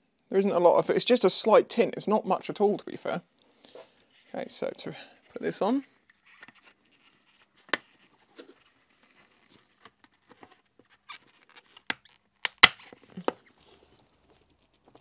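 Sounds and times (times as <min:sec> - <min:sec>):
sharp plastic snaps: 0:11.8 - 0:12.9.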